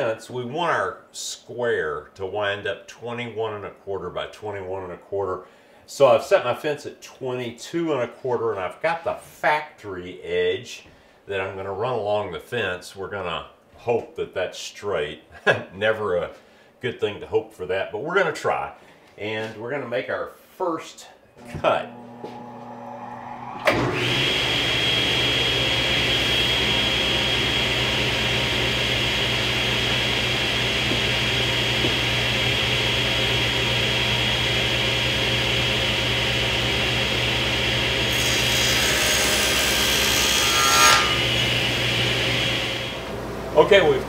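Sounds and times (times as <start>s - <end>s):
table saw whining: 21.4s - 44.0s
saw blade ripping plywood: 38.3s - 41.4s.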